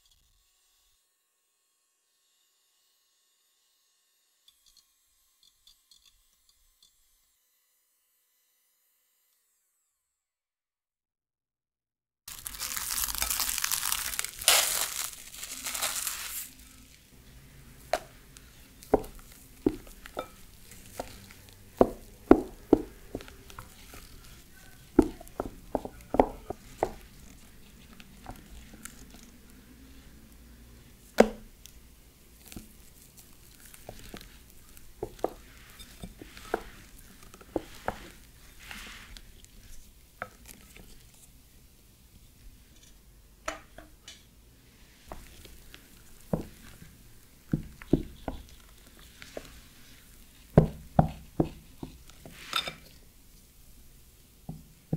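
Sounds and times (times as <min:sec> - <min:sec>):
cling film crinkling: 0:12.3 - 0:17.2
spatula scraping glass bowl: 0:18.0 - 0:29.3, 0:33.7 - 0:39.2, 0:51.0 - 0:53.0.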